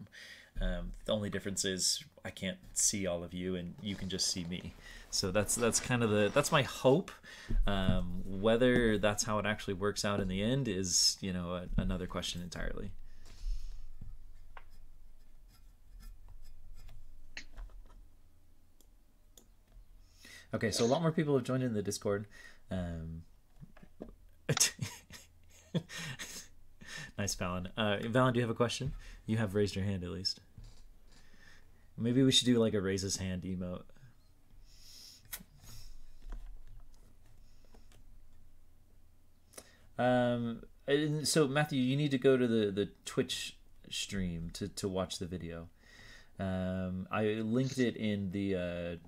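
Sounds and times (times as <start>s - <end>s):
soft hiss: 0.0s - 49.0s
low electrical hum: 0.6s - 34.7s.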